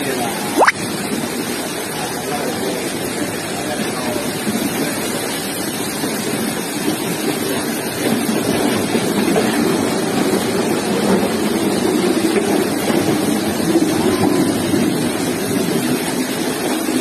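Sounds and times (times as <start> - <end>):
floodwater rushing: 0.5 - 1.9.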